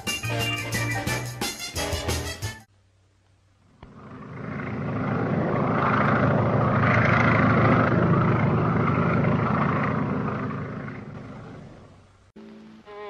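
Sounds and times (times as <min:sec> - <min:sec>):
propeller airplane engine droning: 0:03.5 - 0:12.4.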